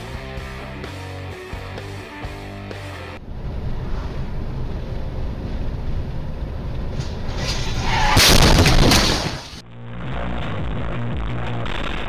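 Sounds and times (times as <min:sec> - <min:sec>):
road and engine rumble: 0:00.0 - 0:10.8
car crash impacts: 0:07.0 - 0:09.6.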